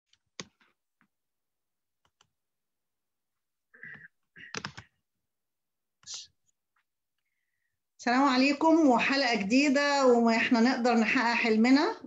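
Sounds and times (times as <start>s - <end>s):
keyboard or mouse clicks: 3.9s - 4.9s.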